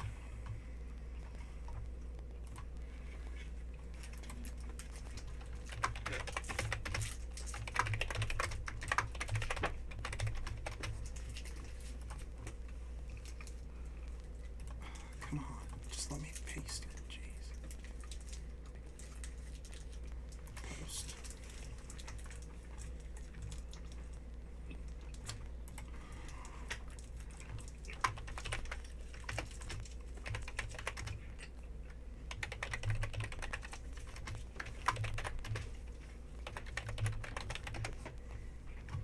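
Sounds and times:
low steady hum: 0:00.0 - 0:39.0
computer keyboard typing: 0:04.0 - 0:12.2, 0:26.7 - 0:31.4, 0:32.3 - 0:35.8, 0:36.4 - 0:38.2.

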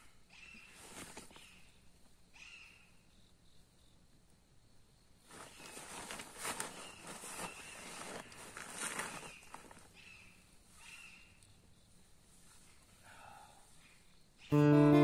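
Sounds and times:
rustling and crunching on forest floor: 0:00.4 - 0:01.7, 0:05.2 - 0:13.0.

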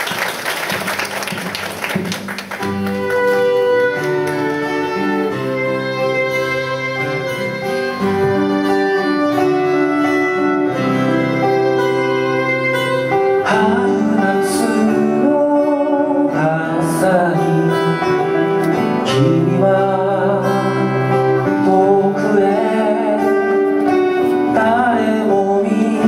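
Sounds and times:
applause: 0:00.0 - 0:04.8
acoustic guitars: 0:00.0 - 0:26.0
violin melody: 0:02.6 - 0:25.2.

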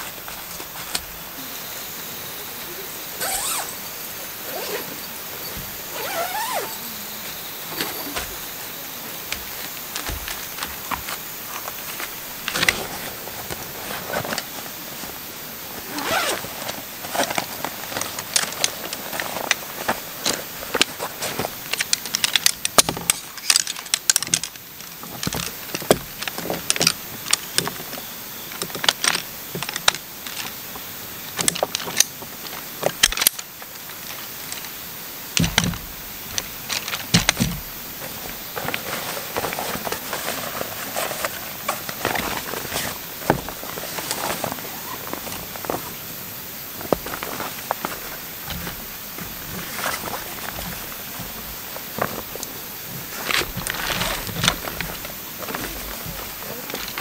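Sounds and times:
nylon rustling: 0:03.2 - 0:03.7, 0:04.4 - 0:06.8, 0:15.8 - 0:21.5.

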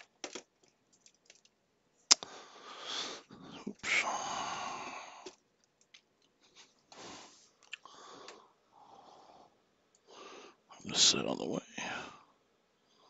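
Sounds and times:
small clicks: 0:00.0 - 0:02.3, 0:05.2 - 0:06.4.

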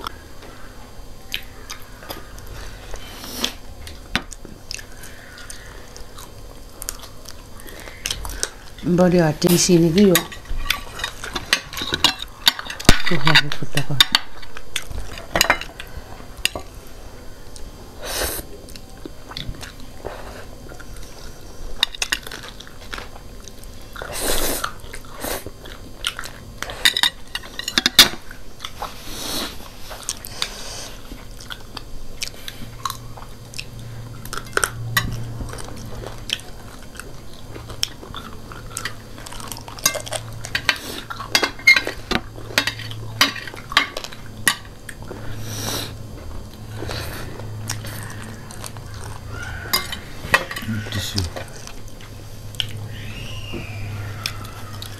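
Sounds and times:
chewing and biting: 0:01.3 - 0:08.8, 0:18.6 - 0:45.4, 0:46.0 - 0:50.1.

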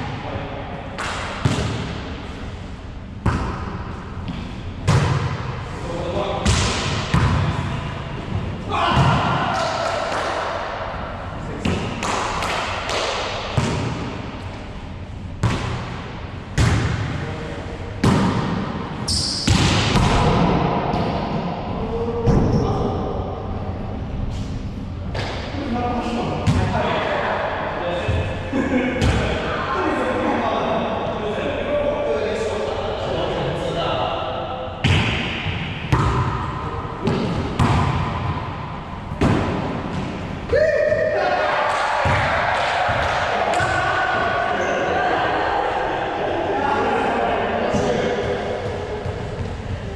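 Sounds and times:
volleyball smacking walls: 0:18.0 - 0:18.8, 0:34.8 - 0:38.6, 0:39.2 - 0:40.4
person shouting: 0:40.5 - 0:41.5.

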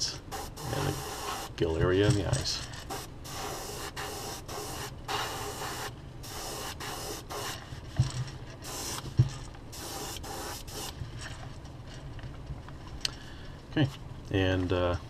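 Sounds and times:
airbrush spraying hiss: 0:00.3 - 0:01.6, 0:02.9 - 0:07.6, 0:08.6 - 0:09.1, 0:09.7 - 0:11.0.

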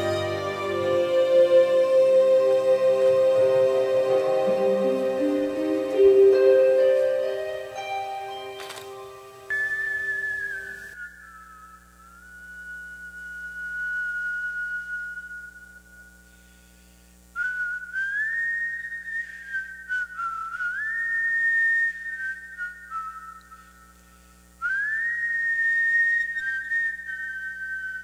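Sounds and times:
person whistling a slow melody: 0:09.5 - 0:16.4, 0:17.4 - 0:28.0.

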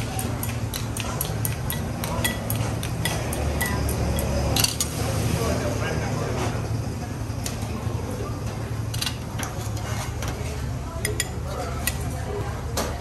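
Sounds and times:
chopsticks clinking against bowls: 0:00.2 - 0:04.9, 0:11.0 - 0:12.1.

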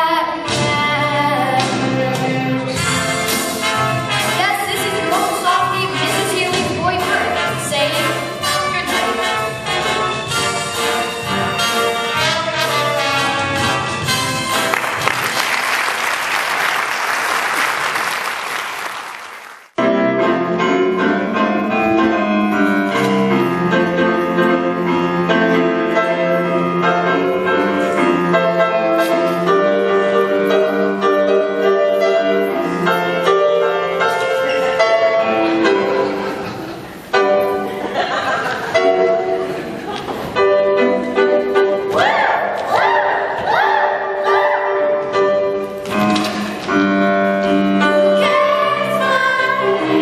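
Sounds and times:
lively piano stage-musical music: 0:00.0 - 0:50.0
audience applauding: 0:14.6 - 0:19.8.

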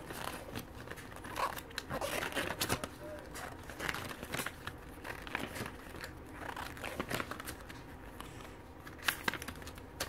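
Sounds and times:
paper pages rustling: 0:00.0 - 0:10.0.

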